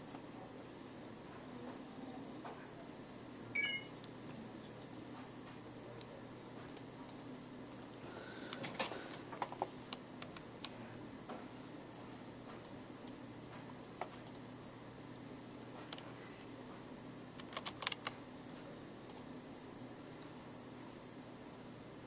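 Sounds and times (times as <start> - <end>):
steady low hum: 0.0 - 22.0
short high beep: 3.6 - 3.9.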